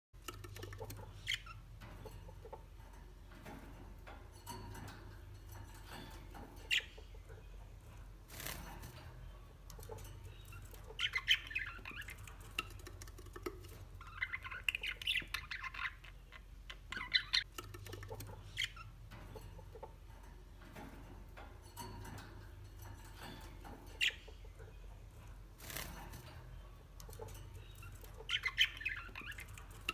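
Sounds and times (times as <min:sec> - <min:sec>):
chicks cheeping: 0:09.2 - 0:20.5, 0:26.5 - 0:29.9.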